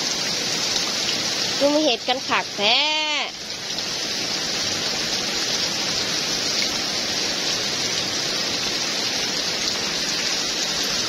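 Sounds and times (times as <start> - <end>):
heavy rain falling: 0.0 - 11.0.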